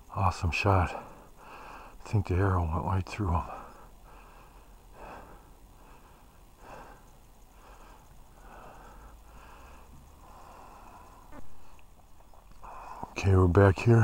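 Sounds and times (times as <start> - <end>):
man breathing: 1.0 - 2.0, 3.5 - 13.2.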